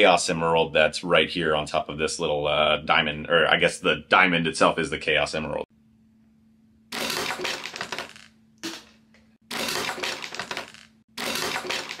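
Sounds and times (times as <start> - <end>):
plastic toy launcher clicking: 9.5 - 12.0.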